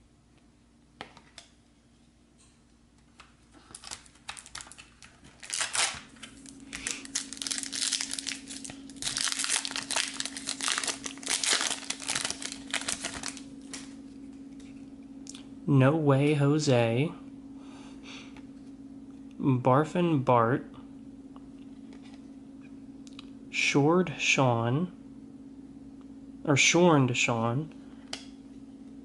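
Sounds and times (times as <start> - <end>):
steady low hum: 0.0 - 29.0
foil wrapper crinkling and tearing: 3.5 - 14.0.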